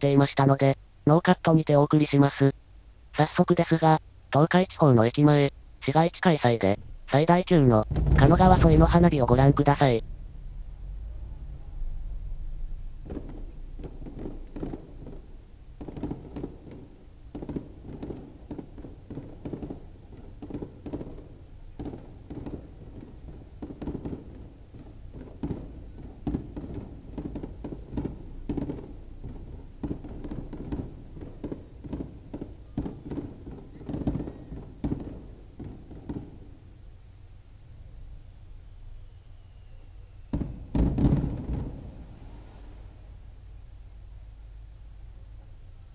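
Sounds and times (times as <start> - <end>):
muffled firework booms: 6.8 - 37.2, 40.1 - 43.3.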